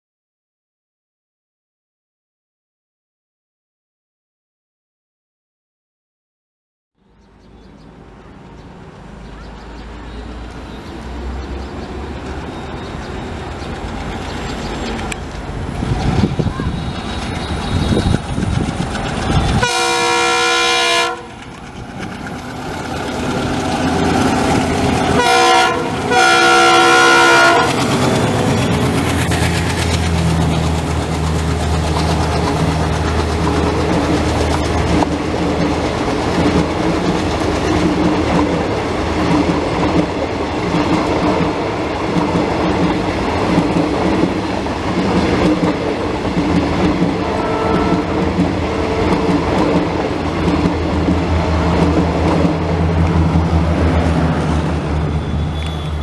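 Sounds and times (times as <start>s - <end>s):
train coaches clickety-clack: 7.7s - 56.0s
locomotive engine rumble: 7.8s - 56.0s
locomotive horn: 19.5s - 21.4s, 25.1s - 28.0s, 47.1s - 49.4s, 55.0s - 56.0s.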